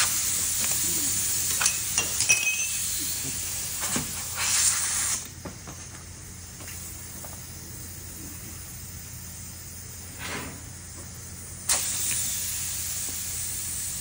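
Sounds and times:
compressed air hissing into tire: 0:00.0 - 0:02.0, 0:02.7 - 0:05.4, 0:06.3 - 0:14.0
light metallic clinks: 0:01.4 - 0:03.0.

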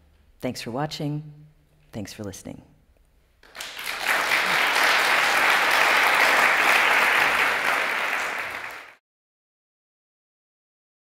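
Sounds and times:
audience applauding: 0:03.4 - 0:09.0.

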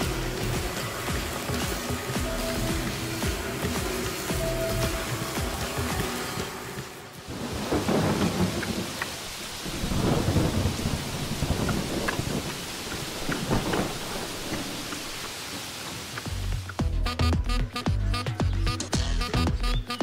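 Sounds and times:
heavy rain: 0:00.0 - 0:17.9
rolling thunder: 0:07.3 - 0:15.2.

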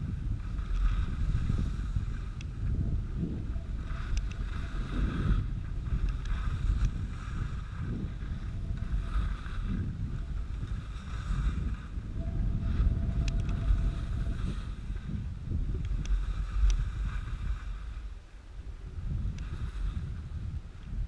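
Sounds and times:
wind buffeting microphone: 0:00.0 - 0:21.0
snowboard hissing over snow: 0:00.3 - 0:02.4, 0:03.2 - 0:12.0, 0:16.2 - 0:18.0, 0:19.2 - 0:20.6.

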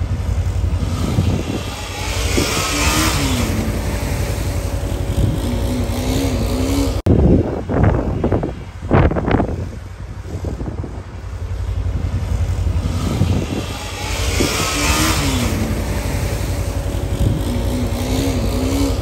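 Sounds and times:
dirt bike engine revving: 0:00.0 - 0:07.1, 0:11.2 - 0:19.0
steady low rumble: 0:00.0 - 0:19.0.

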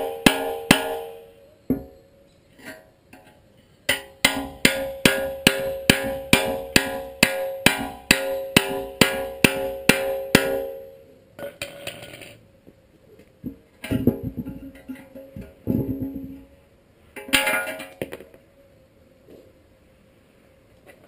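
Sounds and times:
hammer striking steel: 0:00.0 - 0:01.9, 0:03.9 - 0:12.3.

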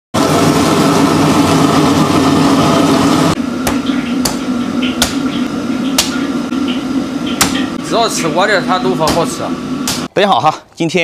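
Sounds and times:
wok stove roaring: 0:00.1 - 0:10.1
broth pouring: 0:00.2 - 0:10.1.

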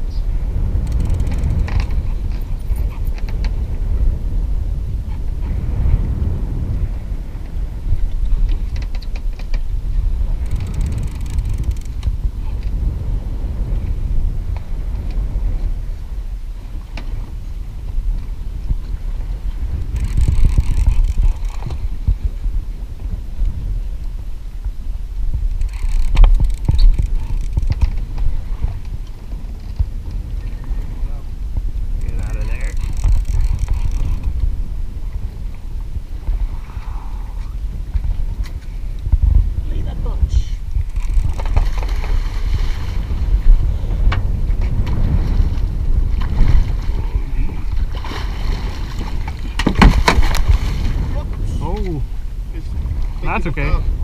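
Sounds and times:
wind rumble on microphone: 0:00.0 - 0:54.0
knocks and clicks from boat gear: 0:00.7 - 0:03.8, 0:07.4 - 0:09.7, 0:10.3 - 0:12.8, 0:16.9 - 0:17.4, 0:18.0 - 0:22.4, 0:25.5 - 0:30.6, 0:32.0 - 0:35.6, 0:40.8 - 0:42.3, 0:43.4 - 0:47.0, 0:47.6 - 0:52.0.

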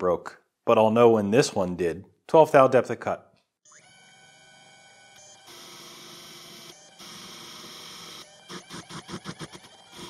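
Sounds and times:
lathe spindle noise: 0:03.7 - 0:10.0.

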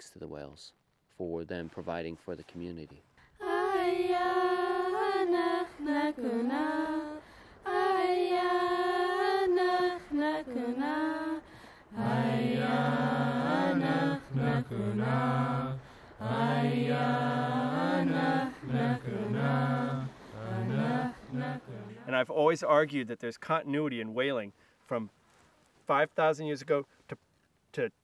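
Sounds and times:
high voice chanting: 0:12.0 - 0:22.2.

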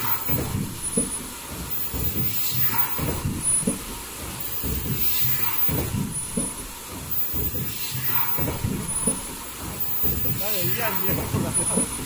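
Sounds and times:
production line machinery clattering: 0:00.0 - 0:12.0.

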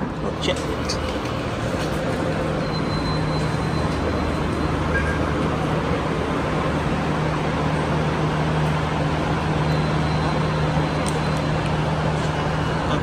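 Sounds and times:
low mechanical hum: 0:00.0 - 0:13.0
traffic-like rumble: 0:00.0 - 0:13.0.

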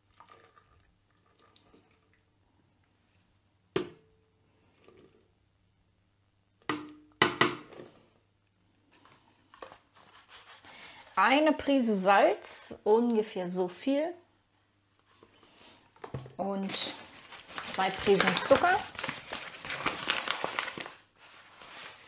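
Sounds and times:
knocks on metal bowl: 0:06.7 - 0:07.7.

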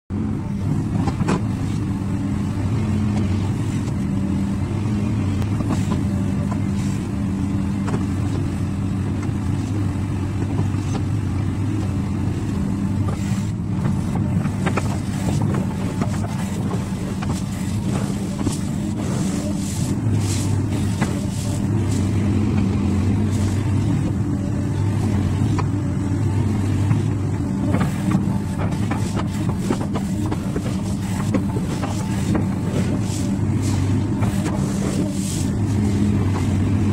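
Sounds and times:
excavator diesel engine running: 0:00.1 - 0:36.9.

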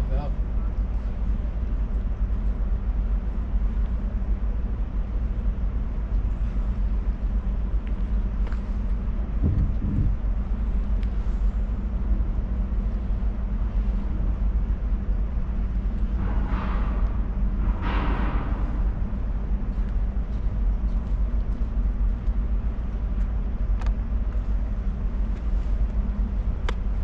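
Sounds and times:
wind buffeting microphone: 0:06.6 - 0:11.0.

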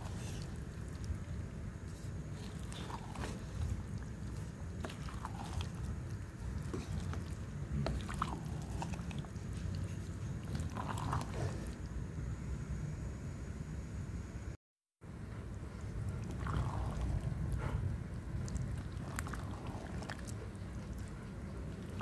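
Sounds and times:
stew bubbling in a pot: 0:00.0 - 0:12.8, 0:15.5 - 0:22.0
steady low rumble: 0:00.0 - 0:22.0.

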